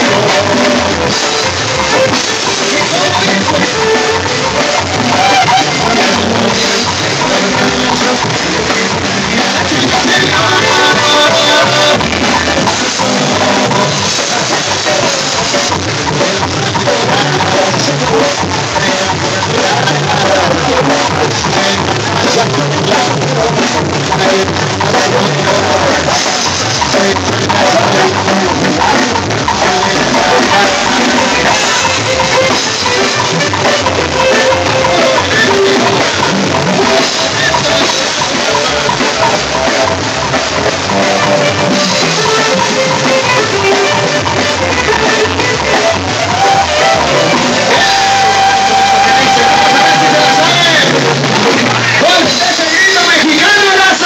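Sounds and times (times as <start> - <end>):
drum kit beat: 0.0 - 54.0
keyboard: 0.0 - 54.0
live band playing loud: 0.0 - 54.0
person singing into a microphone: 0.0 - 54.0
saxophone: 29.8 - 52.0.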